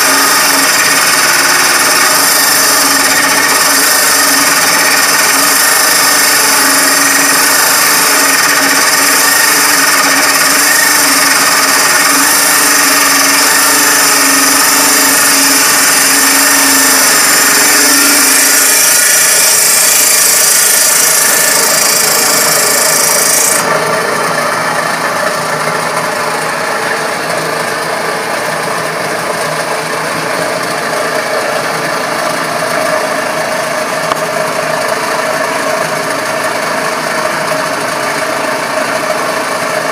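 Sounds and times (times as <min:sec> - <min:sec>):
table saw cutting wood: 0:00.0 - 0:39.9.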